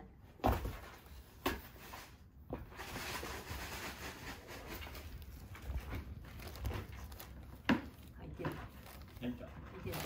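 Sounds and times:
plastic bag crinkling: 0:03.0 - 0:10.0.

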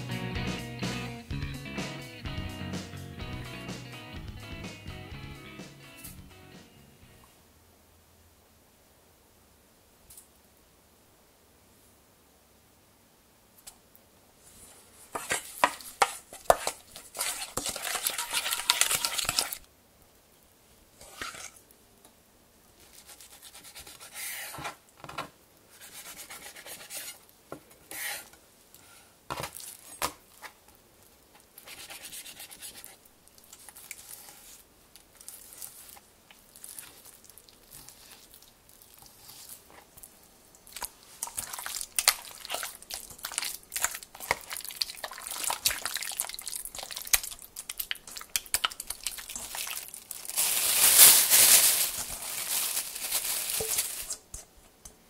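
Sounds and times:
hands squishing marinated chicken: 0:15.2 - 0:19.6, 0:31.6 - 0:54.2
plastic bag crinkling: 0:16.6 - 0:19.6, 0:40.6 - 0:54.3.

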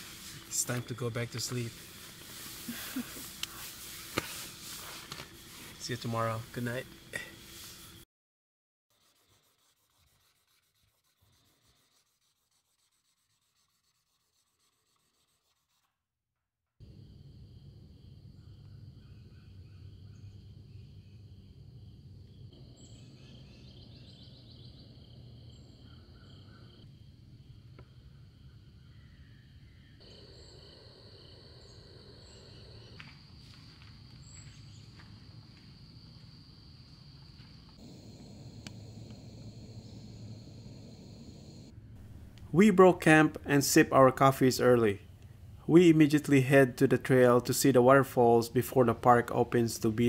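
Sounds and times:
drawing tool rubbing on paper: 0:00.0 - 0:06.6, 0:08.9 - 0:15.9
insects chirring: 0:00.0 - 0:08.0, 0:16.8 - 0:41.8
low rumble: 0:37.8 - 0:42.5.

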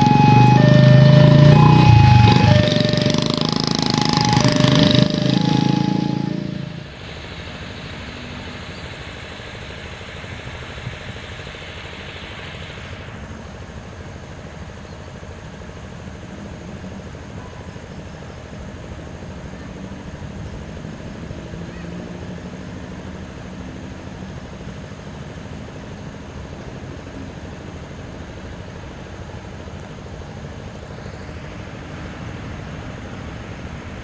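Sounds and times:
level crossing alarm two-tone: 0:00.0 - 0:06.8
thin high whine: 0:00.0 - 0:09.3
vehicle engines idling: 0:00.0 - 0:34.0.

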